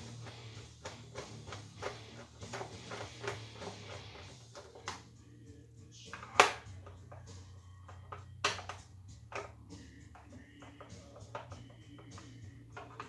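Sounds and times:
screwdriver clicking and scraping: 0.0s - 5.0s, 10.2s - 13.0s.

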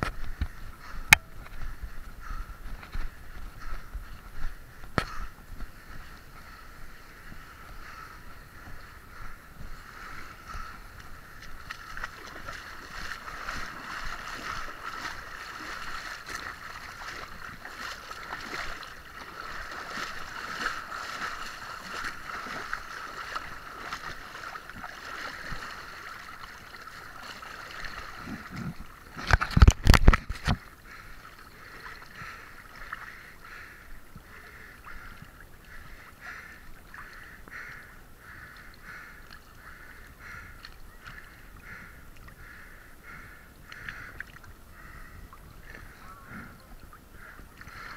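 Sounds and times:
water sloshing around legs: 2.6s - 42.6s
loud splashes and knocks: 29.1s - 30.6s.

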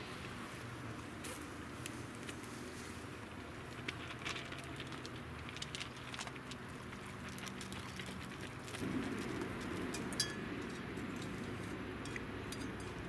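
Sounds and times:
dogs chewing food: 3.2s - 13.0s
low hum: 8.6s - 13.0s.

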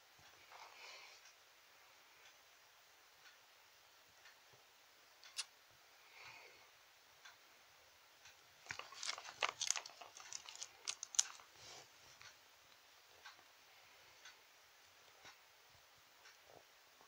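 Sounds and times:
plastic toys clicking and rustling: 8.6s - 11.6s.

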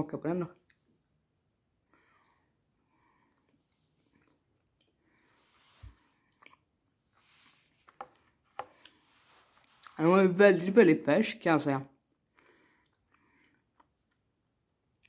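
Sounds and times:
chewing soft candy: 3.2s - 5.2s, 6.1s - 7.0s, 12.8s - 15.0s.

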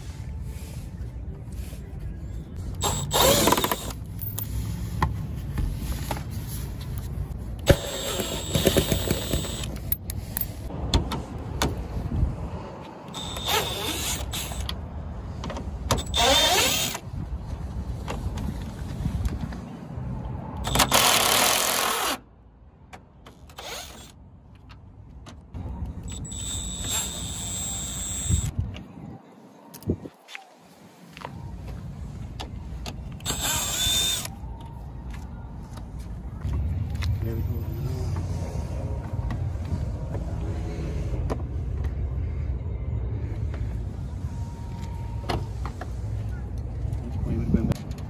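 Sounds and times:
power driver whirring: 2.8s - 4.0s, 7.7s - 9.8s, 13.1s - 14.7s, 20.6s - 22.1s, 26.1s - 28.5s, 33.2s - 34.3s.

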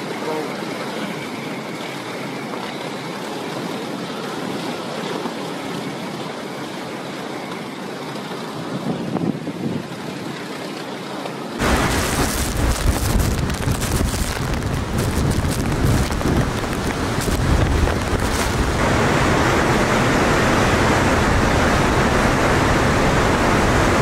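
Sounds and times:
hurricane wind and rain: 0.0s - 24.0s
gusting wind buffeting microphone: 8.5s - 10.3s, 11.6s - 24.0s.

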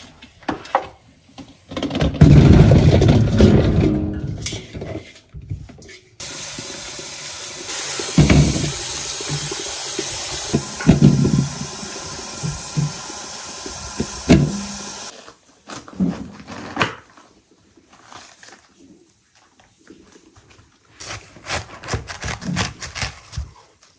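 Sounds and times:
things knocking and clattering: 1.6s - 6.4s, 7.7s - 15.1s
water running: 6.2s - 15.1s.

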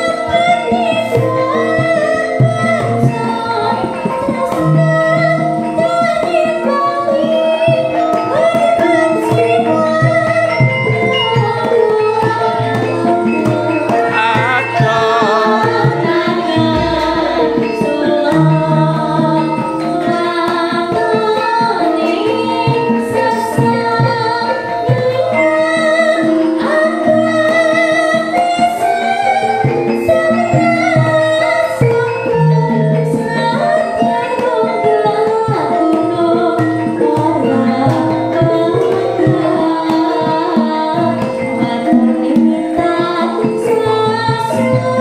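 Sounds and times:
woman singing into a microphone: 0.0s - 45.0s
gamelan gongs and metallophones: 0.1s - 45.0s
drum: 14.0s - 19.2s.

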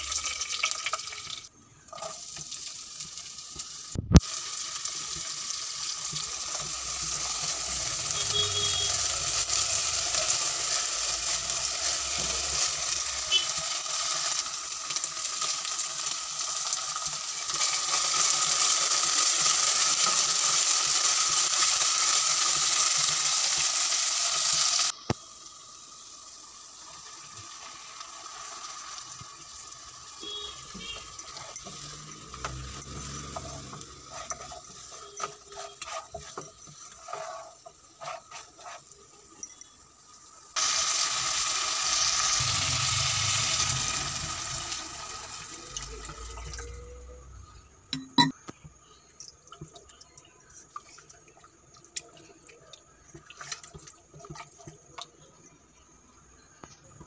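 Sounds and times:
onions sizzling in oil: 0.0s - 47.5s.

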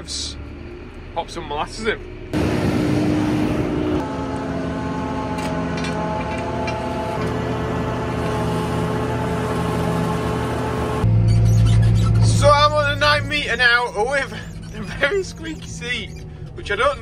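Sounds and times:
tractor engine running: 0.0s - 17.0s.

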